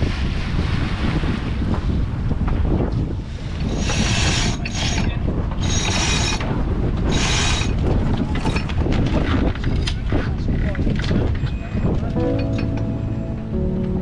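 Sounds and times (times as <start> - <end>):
wind rumble on microphone: 0.0 - 14.0
winch ratcheting: 3.7 - 6.5.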